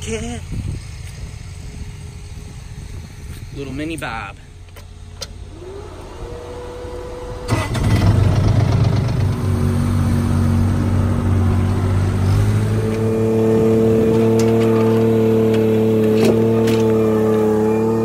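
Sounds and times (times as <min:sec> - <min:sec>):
engine starting and running: 0:04.5 - 0:18.0.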